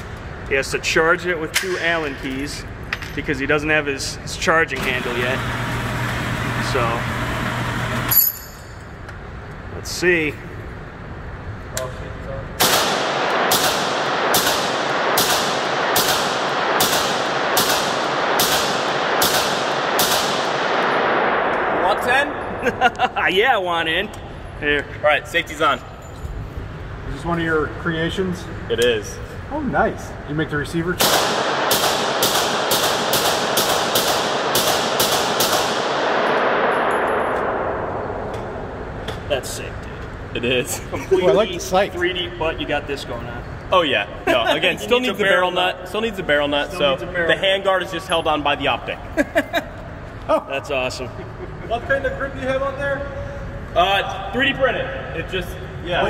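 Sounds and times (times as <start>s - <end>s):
gunshots ringing indoors: 12.6s - 22.6s, 31.0s - 39.0s.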